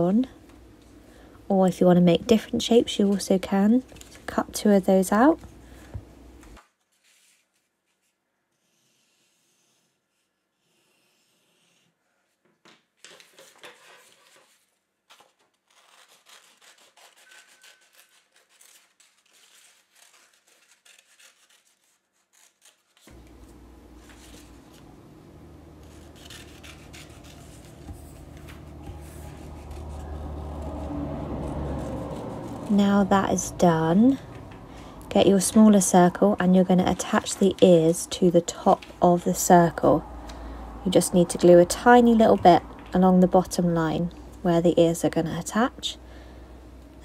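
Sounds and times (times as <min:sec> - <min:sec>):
card rustling: 0:13.0 - 0:32.8
steady low hum: 0:23.1 - 0:47.0.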